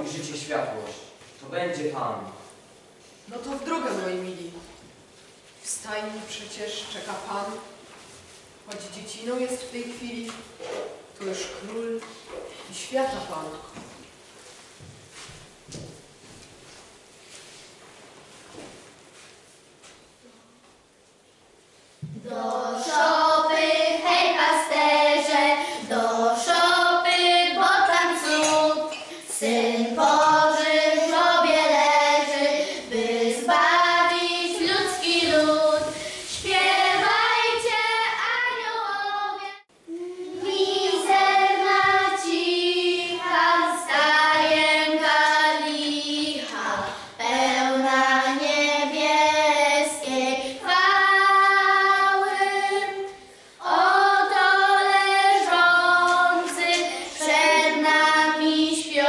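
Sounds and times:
children's choir singing a carol: 22.0 - 59.0.

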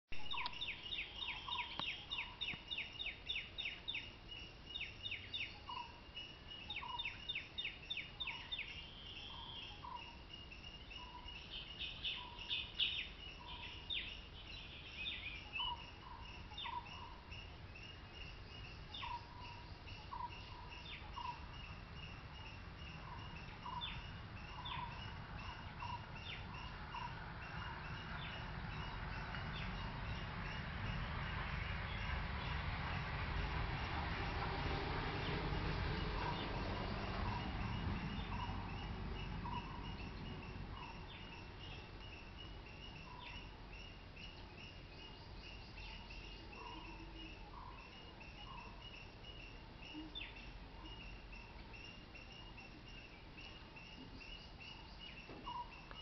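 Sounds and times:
birds chirping sharply: 0.2 - 4.1.

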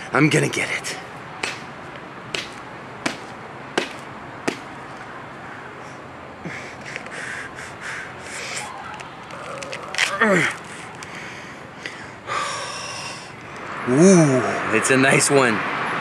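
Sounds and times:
coconut knocking on concrete: 2.4 - 4.7
husk rasping and tearing: 9.2 - 11.1.

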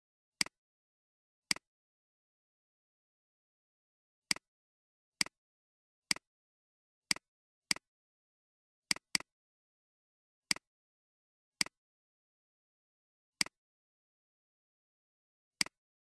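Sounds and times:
computer mouse clicks: 8.9 - 9.3, 15.6 - 15.8.

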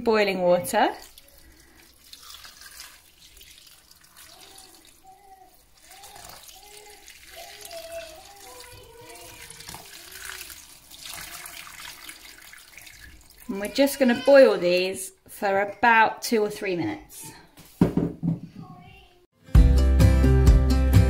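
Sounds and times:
boiling water pouring into saucepan: 0.9 - 13.6.

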